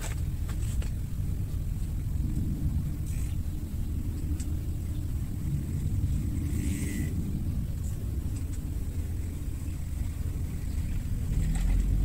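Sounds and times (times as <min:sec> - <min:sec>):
pitched hum: 0:00.0 - 0:12.0
steady low rumble: 0:00.0 - 0:12.0.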